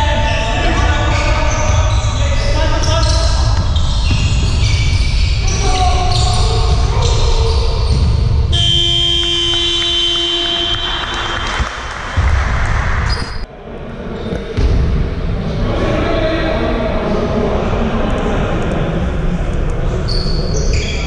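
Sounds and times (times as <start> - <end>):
basketball bouncing: 2.8 - 13.4
shrill referee's whistle: 8.5 - 11.6.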